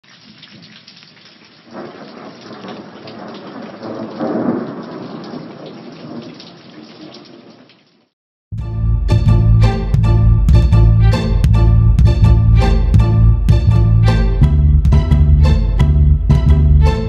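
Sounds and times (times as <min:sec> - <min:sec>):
rain hiss: 0:00.1 - 0:08.1
thunder rumble: 0:01.7 - 0:07.5.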